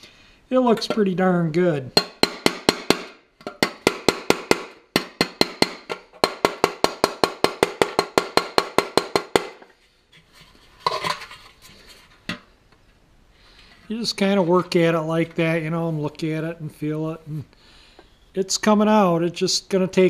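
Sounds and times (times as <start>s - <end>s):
hammer tapping metal punch: 2.0s - 9.7s
metal wheel cover clattering: 10.8s - 11.4s.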